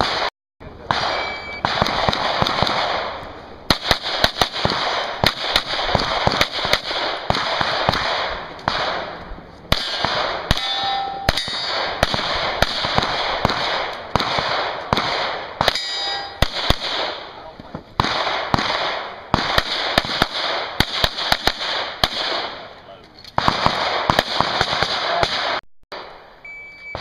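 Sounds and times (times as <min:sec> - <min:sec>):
pistol shots: 0:00.0 - 0:17.4, 0:18.0 - 0:22.7, 0:23.3 - 0:26.2
steel targets ringing: 0:10.5 - 0:11.9, 0:15.6 - 0:16.5.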